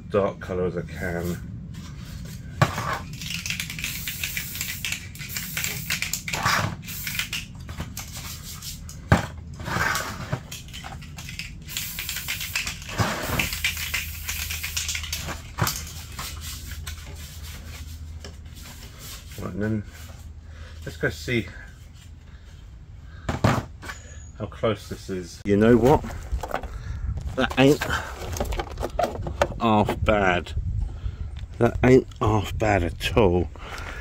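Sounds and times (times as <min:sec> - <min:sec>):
spray can hissing: 0:03.1 - 0:09.0, 0:11.2 - 0:17.6
plastic parts knocking: 0:27.4 - 0:29.6.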